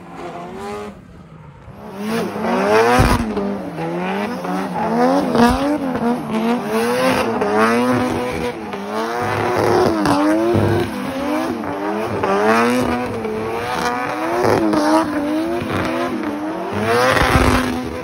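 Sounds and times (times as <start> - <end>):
car engine revving: 0.0 - 18.0.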